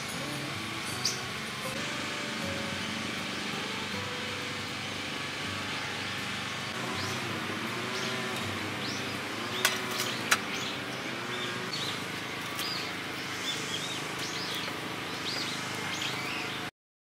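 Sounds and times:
steady outdoor hiss: 0.0s - 16.7s
small birds chirping: 0.7s - 1.8s, 5.6s - 16.7s
metal tongs knocking logs: 9.6s - 10.6s.

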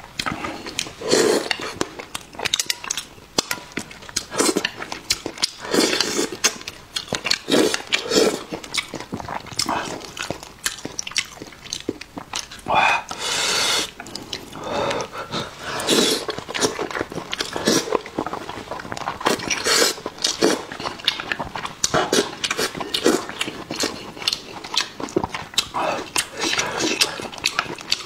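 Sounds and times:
wet chewing: 0.1s - 28.0s
slurping: 0.2s - 2.7s, 4.1s - 28.0s
lip smacks: 15.8s - 28.0s.

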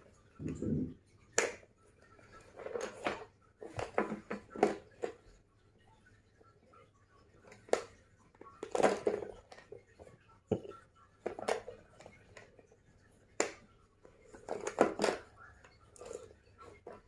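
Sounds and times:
plastic box clicking and knocking: 14.4s - 15.3s.

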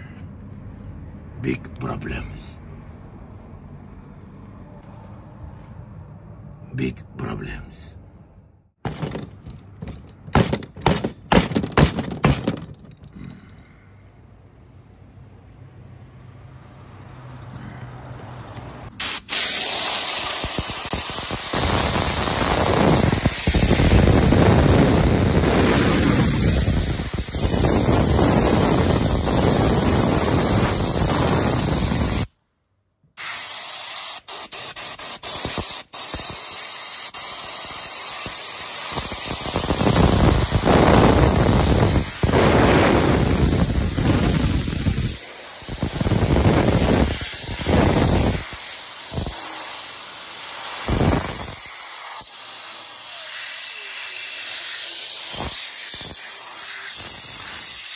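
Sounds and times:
spray gun hissing: 19.0s - 32.3s, 33.2s - 57.9s.

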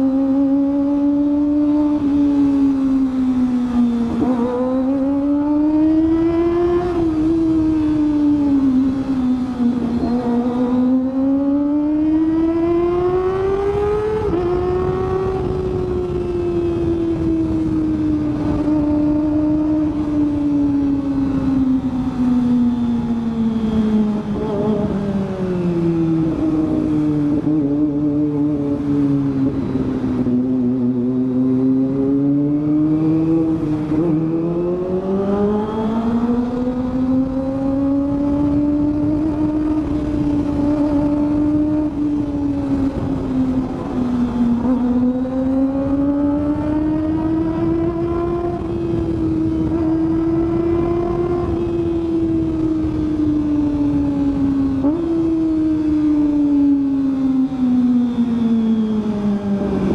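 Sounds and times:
motorcycle engine at riding speed: 0.0s - 59.9s.

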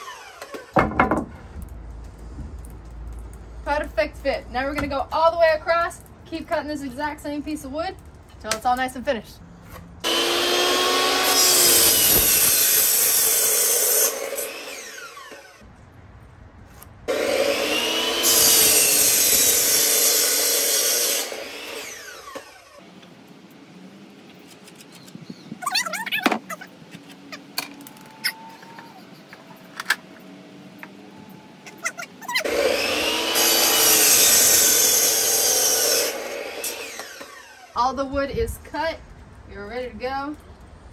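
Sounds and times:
miter saw cutting wood: 0.0s - 0.8s, 10.0s - 15.6s, 17.1s - 22.9s, 32.4s - 37.8s.

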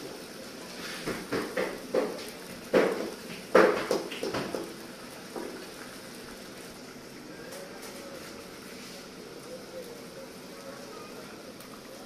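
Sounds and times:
spoon scraping and knocking a pan: 1.0s - 5.6s.

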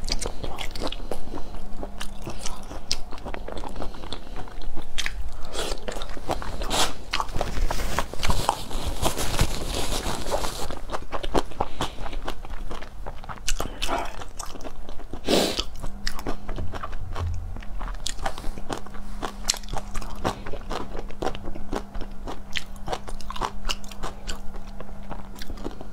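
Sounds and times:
chewing with crunches: 0.0s - 25.9s.

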